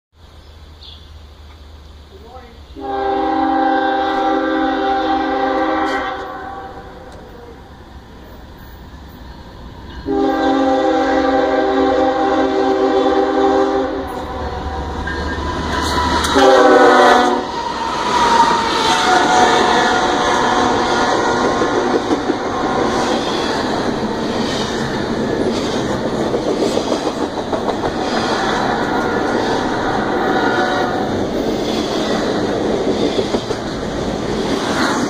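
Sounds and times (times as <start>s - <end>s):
locomotive air horn blasts: 2.8s - 7.1s, 10.0s - 14.4s, 16.0s - 17.6s, 18.4s - 21.4s, 30.1s - 31.1s
locomotive engine and wheel noise: 13.9s - 35.0s.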